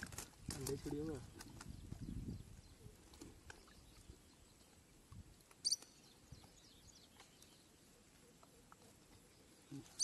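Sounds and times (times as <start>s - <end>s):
bird chirp: 5.6s - 10.0s.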